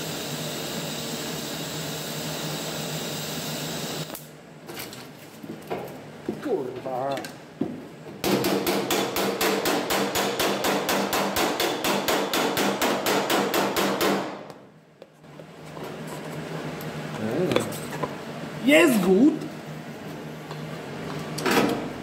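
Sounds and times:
hammer tapping on sheet steel: 8.2 - 14.6.

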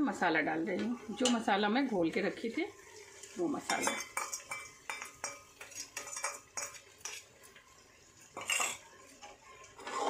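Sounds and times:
metal spatula clinking and scraping: 3.2 - 10.0.

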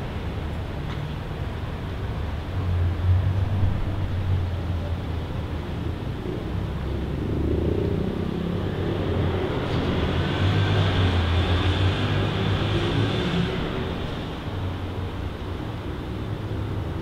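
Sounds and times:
traffic engine rumble: 0.0 - 17.0
car passing: 6.6 - 17.0.

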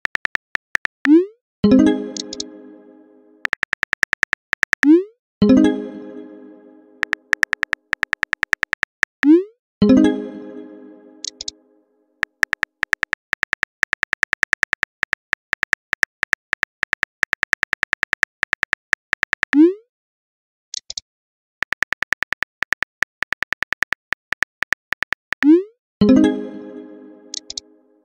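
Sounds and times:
phone keyboard typing clicks: 0.0 - 1.1, 2.2 - 2.5, 3.4 - 4.9, 7.0 - 9.3, 11.2 - 11.5, 12.2 - 19.6, 21.6 - 25.5, 27.3 - 27.6.

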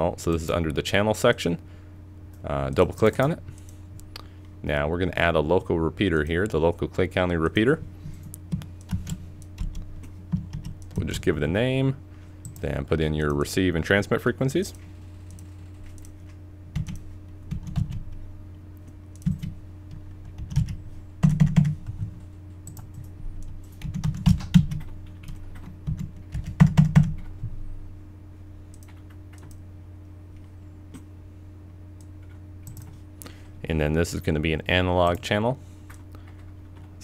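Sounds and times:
steady low hum: 0.0 - 37.0
computer keyboard typing: 8.2 - 11.0, 16.7 - 18.0, 19.2 - 27.3, 28.8 - 29.6.

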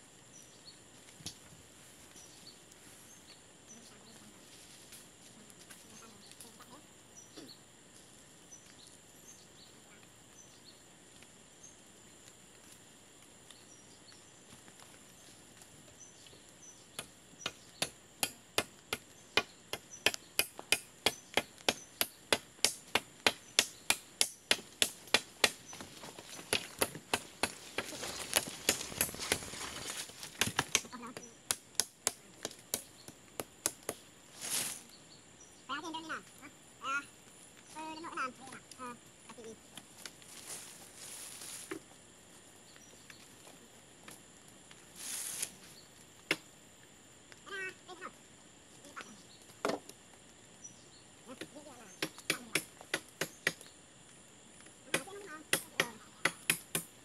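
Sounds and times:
insect hum: 0.0 - 57.0
blade chopping wooden pole: 17.0 - 25.7, 26.5 - 29.5, 30.2 - 34.0, 52.0 - 53.7, 54.9 - 57.0
rustling: 25.0 - 31.2, 34.3 - 34.9, 39.3 - 42.6, 44.5 - 46.2.

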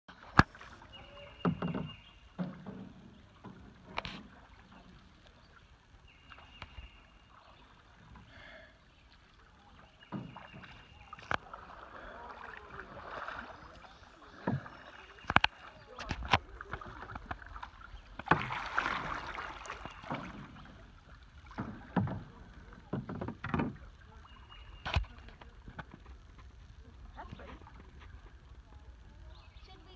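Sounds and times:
paddle splashing in water: 0.1 - 28.4
paddle knocking on canoe hull: 0.2 - 4.8, 10.0 - 24.0.

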